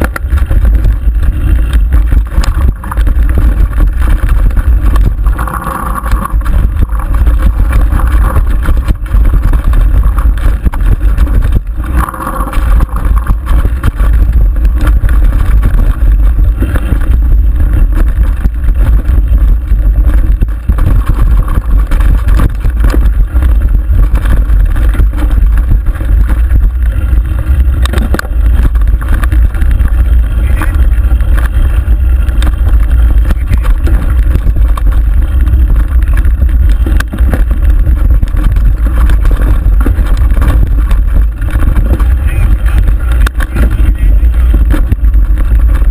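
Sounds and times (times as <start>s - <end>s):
bike knocks and rattles: 0.0s - 45.9s
wind rumble on microphone: 0.0s - 45.9s.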